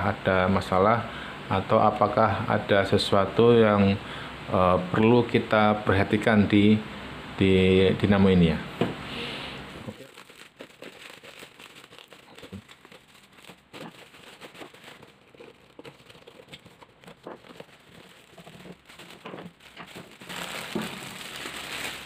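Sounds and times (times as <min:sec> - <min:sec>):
plastic packaging crinkling: 0:09.8 - 0:22.0.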